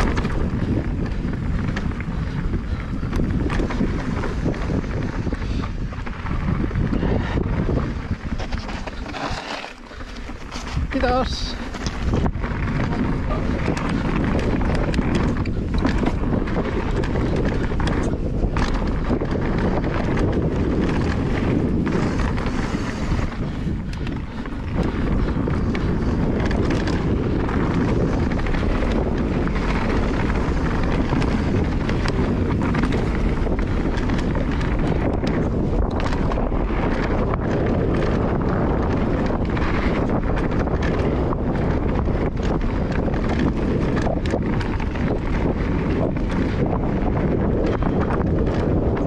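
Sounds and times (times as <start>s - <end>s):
bike rattling and knocking: 0.0s - 49.0s
bike tyres rolling on dirt: 0.0s - 49.0s
wind on microphone: 0.0s - 49.0s.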